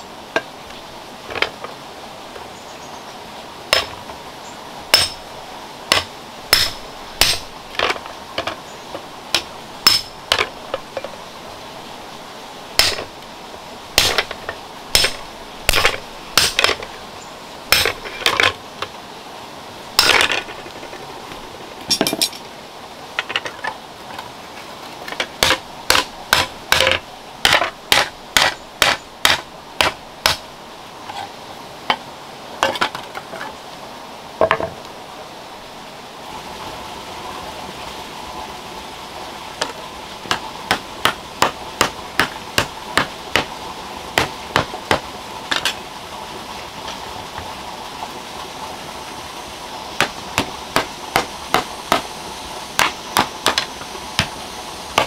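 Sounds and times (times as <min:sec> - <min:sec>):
hammer striking metal punch: 0:04.9 - 0:05.2, 0:05.9 - 0:07.4, 0:09.9 - 0:10.4, 0:15.0 - 0:16.7.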